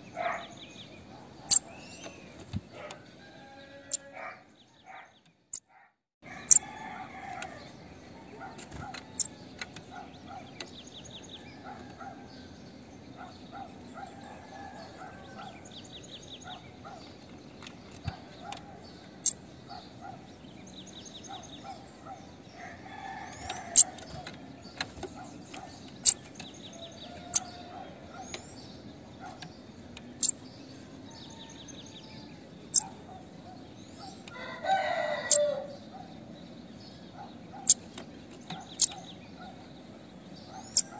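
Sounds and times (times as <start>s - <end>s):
rooster crowing: 3.1s - 4.4s, 6.2s - 7.8s, 14.0s - 15.7s, 22.5s - 24.2s, 26.7s - 28.2s, 31.0s - 32.8s, 34.3s - 35.9s.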